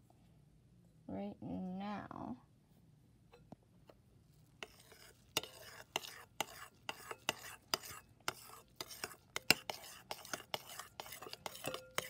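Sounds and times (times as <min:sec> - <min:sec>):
spoon clicking and scraping glass bowl: 0:04.6 - 0:12.0.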